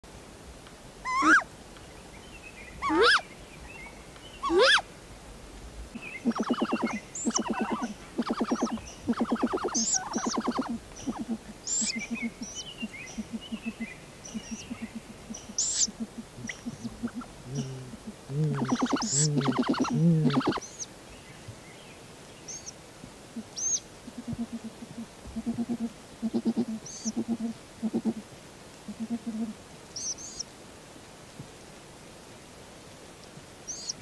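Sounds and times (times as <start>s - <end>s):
owl short rising calls: 1.0s - 1.5s, 2.8s - 3.2s, 4.4s - 4.8s, 6.2s - 20.8s
owl rattling pulsed calls: 4.4s - 4.8s, 6.2s - 17.6s, 18.5s - 20.8s.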